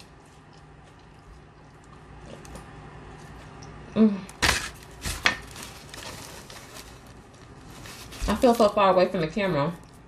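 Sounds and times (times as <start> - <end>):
person chewing: 0.0 - 3.9.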